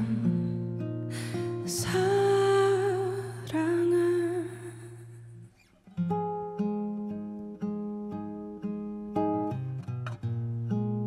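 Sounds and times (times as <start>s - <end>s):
guitar plucked chords: 0.0s - 11.0s.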